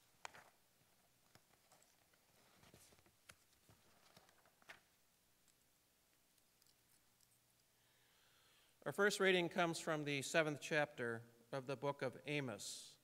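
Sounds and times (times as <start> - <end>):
soft rustles: 0.2 - 5.0.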